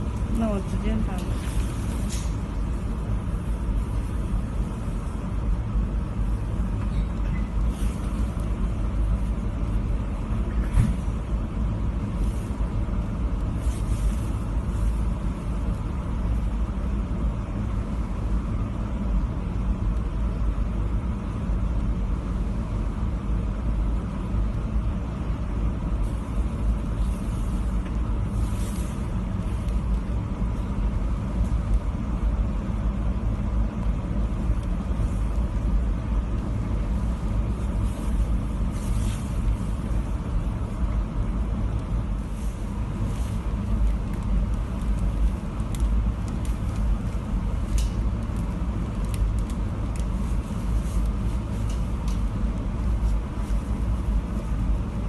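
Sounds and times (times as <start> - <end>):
safety cabinet blower rumble: 0.0 - 55.0
clicks and rustles of plastic tube: 41.7 - 53.8.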